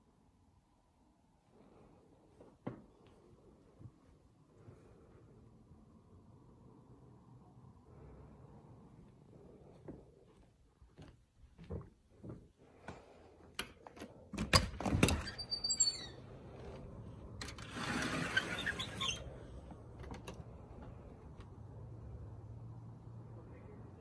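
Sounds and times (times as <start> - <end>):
soft footsteps: 8.9 - 14.2
door squeak: 14.5 - 16.7, 17.6 - 19.4
door scraping: 14.8 - 19.6.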